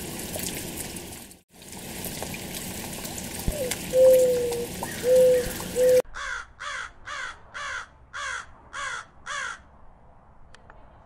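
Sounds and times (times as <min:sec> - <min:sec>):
dove cooing: 0:03.5 - 0:06.0
raven cawing: 0:04.8 - 0:09.7.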